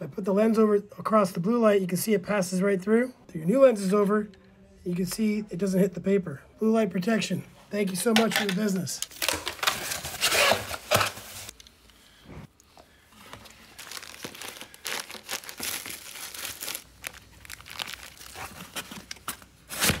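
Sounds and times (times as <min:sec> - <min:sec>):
packing material crinkling: 0:09.0 - 0:11.8, 0:13.0 - 0:20.0.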